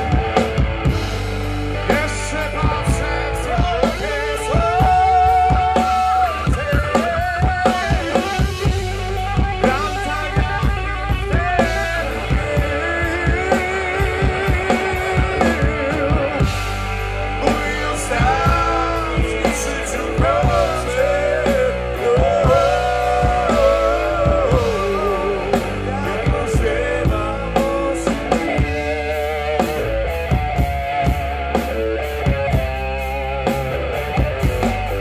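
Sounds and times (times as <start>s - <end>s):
bass guitar: 0.0s - 35.0s
drum kit: 0.0s - 35.0s
electric guitar: 0.0s - 35.0s.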